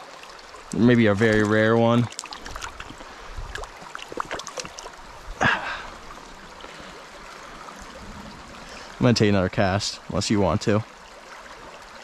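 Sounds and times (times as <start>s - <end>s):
mountain brook running: 0.6s - 6.0s.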